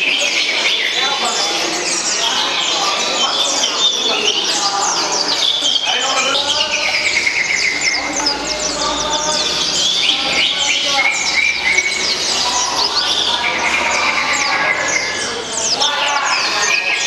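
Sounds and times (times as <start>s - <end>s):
murmuring voices: 0.0s - 17.0s
songbirds chirping and singing: 0.0s - 17.0s.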